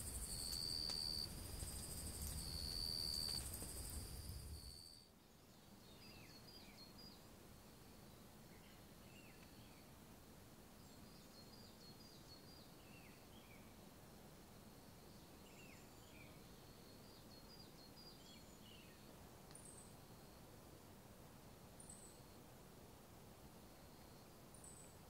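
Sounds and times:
background hiss: 0.0s - 25.0s
faint bird chirps: 4.6s - 9.9s, 14.8s - 20.5s, 21.8s - 22.4s, 23.7s - 25.0s.

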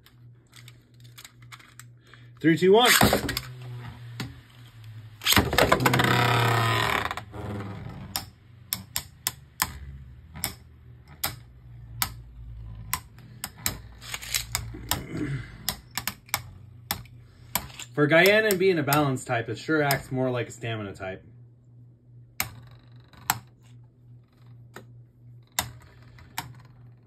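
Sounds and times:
spinning tops clicking: 8.0s - 15.0s.

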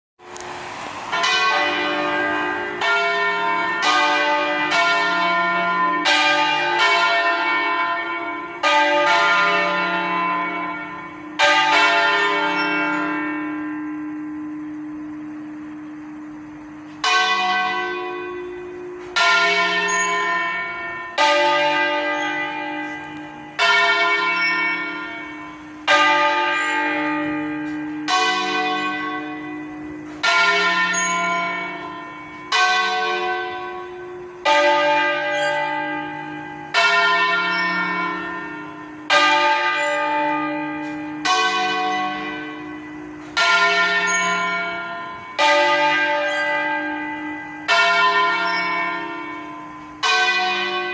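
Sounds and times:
church bell ringing: 0.3s - 50.9s.

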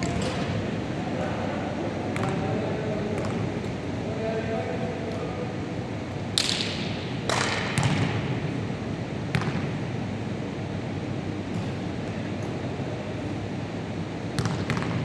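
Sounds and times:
steady background noise: 0.0s - 15.0s
basketball bouncing on wooden court: 7.3s - 8.3s, 9.3s - 9.8s, 14.4s - 15.0s.

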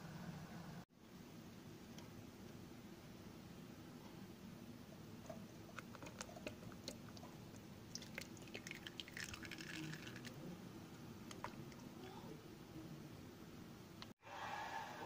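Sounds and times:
syrup pouring and splashing: 5.8s - 10.4s.

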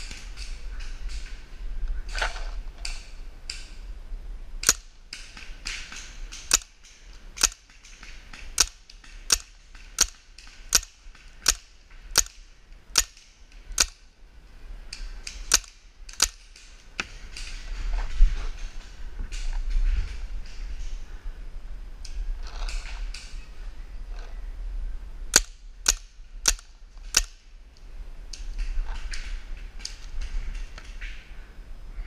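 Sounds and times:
paintball marker firing shots: 4.6s - 14.0s, 15.3s - 17.7s.

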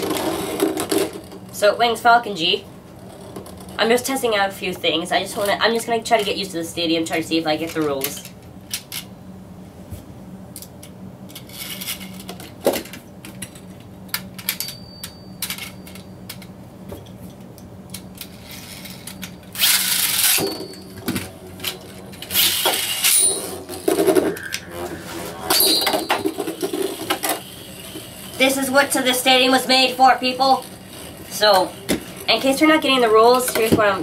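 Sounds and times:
spinning top rattling on plastic: 25.6s - 34.0s.

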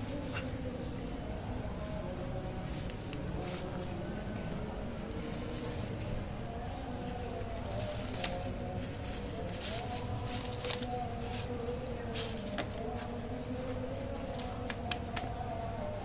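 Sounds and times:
steady background hum: 0.0s - 16.0s
paper crinkling: 7.6s - 13.2s.

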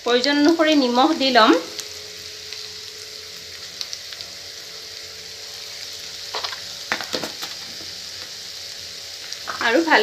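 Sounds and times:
onions sizzling in hot oil: 0.0s - 10.0s.

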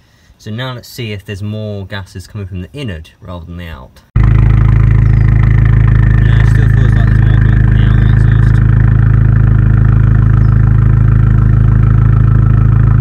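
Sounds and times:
car engine idling: 4.2s - 13.0s.

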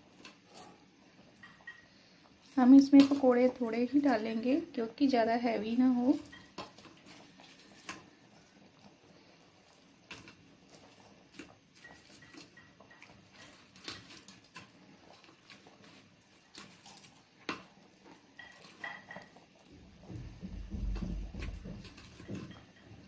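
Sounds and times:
bubbles popping in boiling pot: 17.2s - 23.0s.

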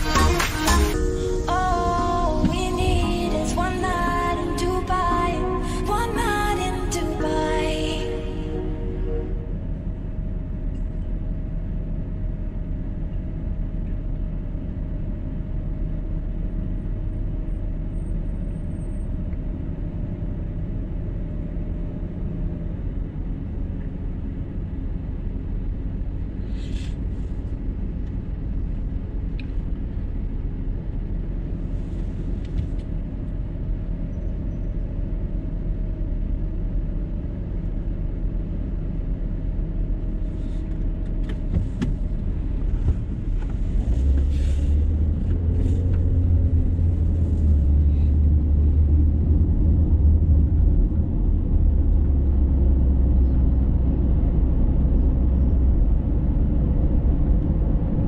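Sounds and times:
faint even hum: 0.0s - 19.4s
car engine and road rumble: 0.0s - 58.0s.

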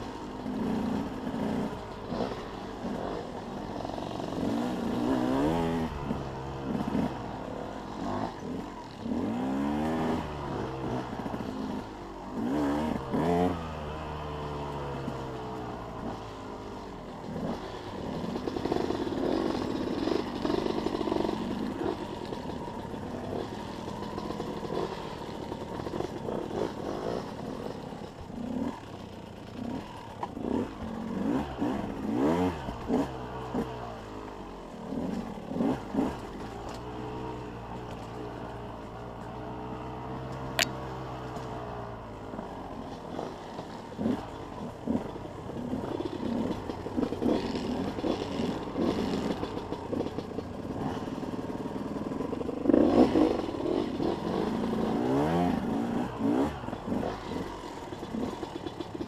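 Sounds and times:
dirt bike engine revving: 0.0s - 59.0s
knocks and clatter over rocks: 42.9s - 59.0s.

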